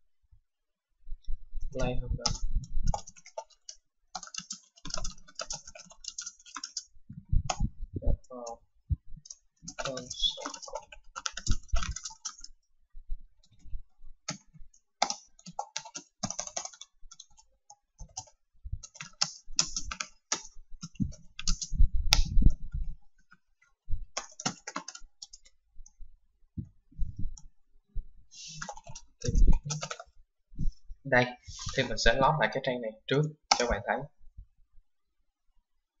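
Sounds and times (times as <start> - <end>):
computer keyboard typing: 1.8 - 7.7, 9.2 - 12.6, 14.2 - 22.4, 24.1 - 26.0, 28.4 - 30.2, 33.3 - 33.9.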